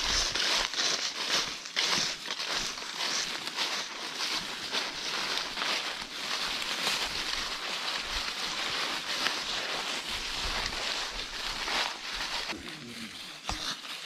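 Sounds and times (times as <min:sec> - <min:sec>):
footsteps on dry leaves: 0:00.0 - 0:14.0.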